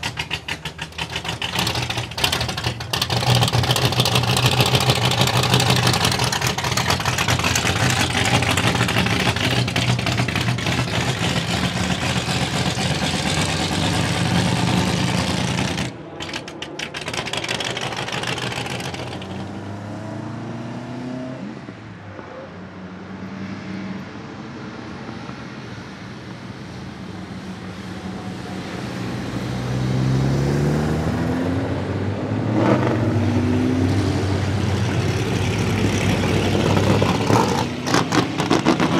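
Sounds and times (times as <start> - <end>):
loud vee eight engine running: 0.0 - 19.6
engine pulling away: 0.0 - 21.4, 29.0 - 38.9
car engines climbing a road: 0.0 - 38.9.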